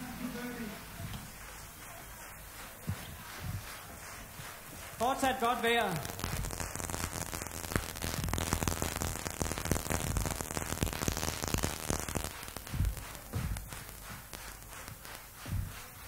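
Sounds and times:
tape hiss and crackle: 0.0s - 16.0s
dull low thumps: 6.1s - 15.8s.

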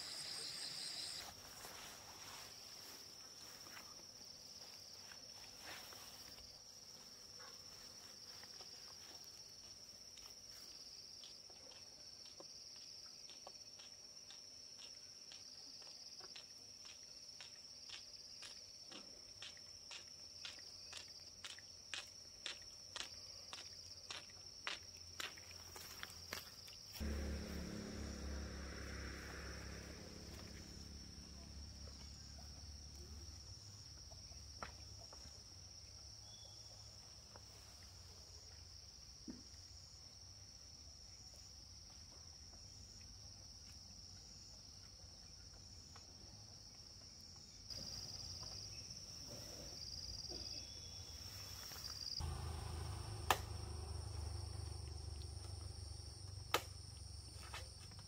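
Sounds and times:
insects calling high tone: 0.0s - 3.5s, 25.8s - 33.2s, 50.1s - 57.6s
low rumble: 27.0s - 32.0s
sharp clicks: 53.2s - 53.6s.

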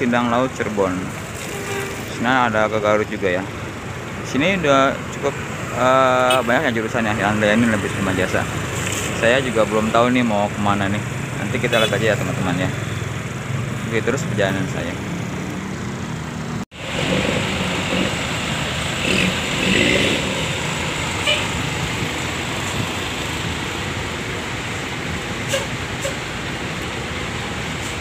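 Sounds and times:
passing traffic: 0.0s - 28.0s
buses idling: 14.6s - 28.0s.

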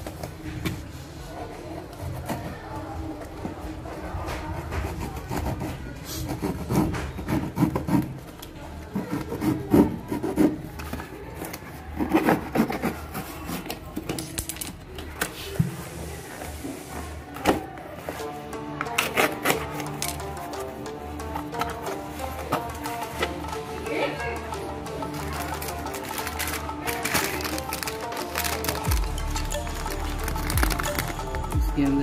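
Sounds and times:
knife slicing packing tape: 19.0s - 20.0s.

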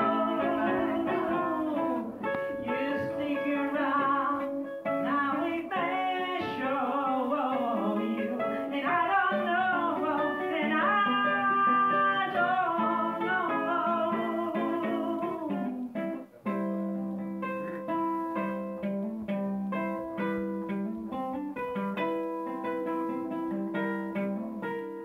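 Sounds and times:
man singing: 0.0s - 15.9s
ukulele playing: 0.0s - 25.0s.

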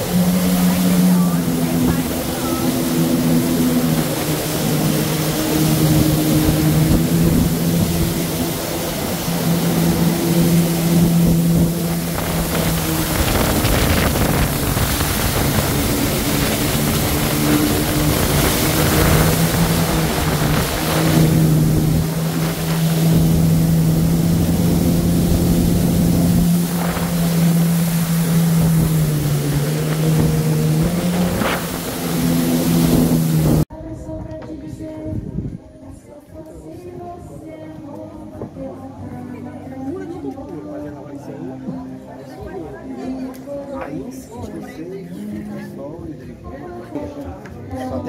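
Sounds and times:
rushing water spray: 0.0s - 33.7s
jet ski engine drone: 0.0s - 33.8s
wind: 0.0s - 48.0s.

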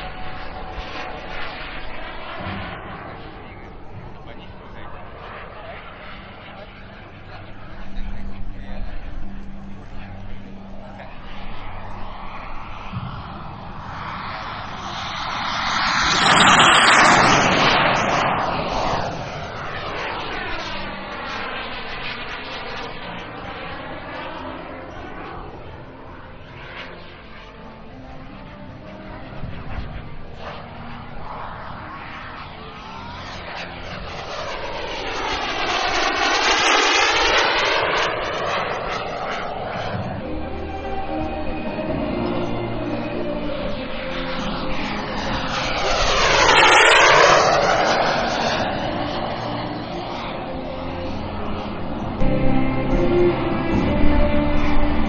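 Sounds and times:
model jet passing: 0.0s - 55.0s.

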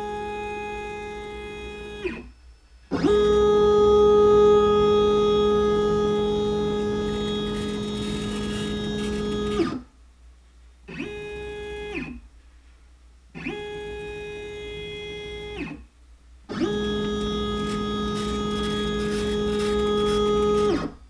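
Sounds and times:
stepper motors whining: 3.0s - 9.8s, 16.5s - 20.9s.

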